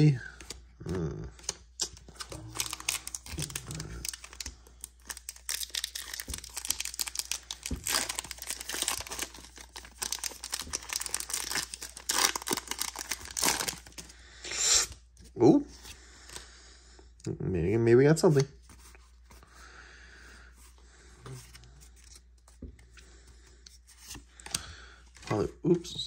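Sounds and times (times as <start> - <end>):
foil wrapper crinkling and tearing: 1.8 - 14.1.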